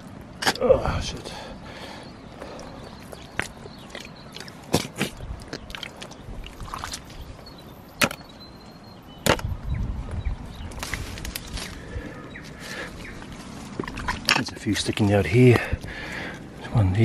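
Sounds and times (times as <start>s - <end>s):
footsteps in soft mud: 2.3s - 7.8s, 10.0s - 16.6s
branches cracking: 10.6s - 15.1s
leaves brushed aside: 10.7s - 11.9s.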